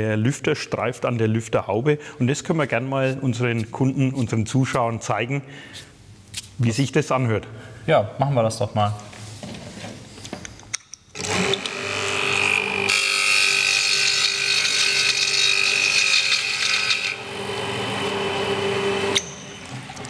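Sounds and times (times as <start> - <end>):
electric motor hum: 11.2 - 20.0.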